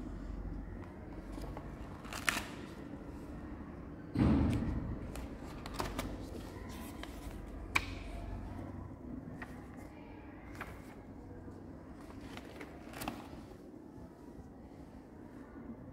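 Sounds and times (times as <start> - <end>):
paper pages rustling: 5.1 - 7.8, 11.9 - 13.6.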